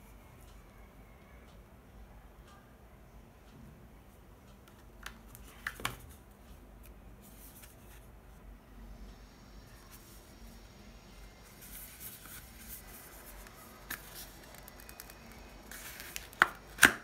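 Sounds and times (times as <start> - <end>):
packaging rustling: 11.6 - 17.0
packaging clicks and taps: 13.2 - 17.0.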